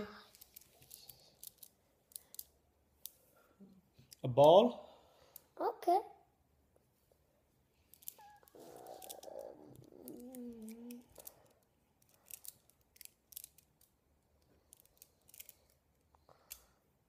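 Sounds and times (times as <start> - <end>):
person humming: 8.6 - 11.1.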